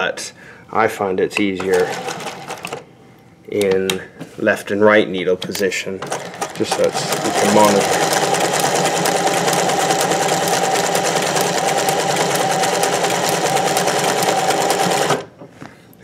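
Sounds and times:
sewing machine running: 1.6s - 2.8s, 6.0s - 15.3s.

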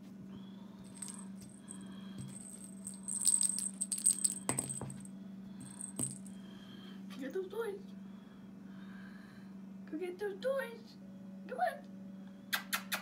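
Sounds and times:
steady low hum: 0.4s - 7.1s
small metal bell jingling: 0.9s - 6.3s.

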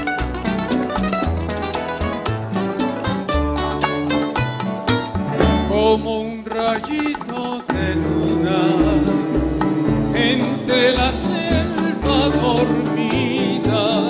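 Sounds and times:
acoustic guitars and bass: 0.0s - 14.0s
person singing: 5.6s - 14.0s.

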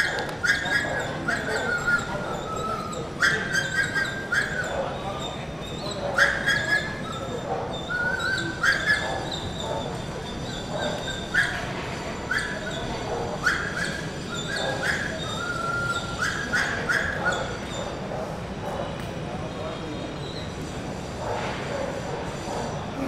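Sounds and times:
dog whining and yelping: 0.0s - 18.1s.

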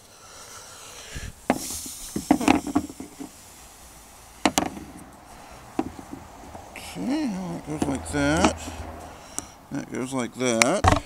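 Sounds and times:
hard parts knocking: 1.5s - 3.4s, 4.4s - 5.1s, 5.7s - 6.6s, 10.6s - 11.0s.

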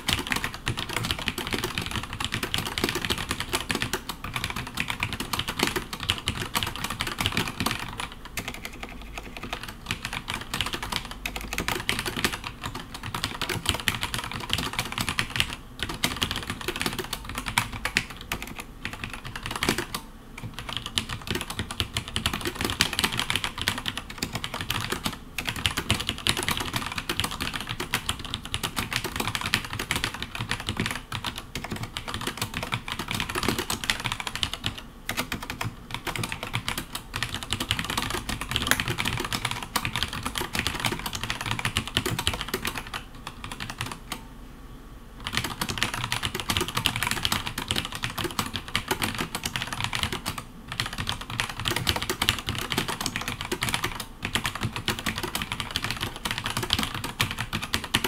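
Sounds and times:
mechanical keyboard typing: 0.0s - 44.2s, 45.2s - 58.0s.

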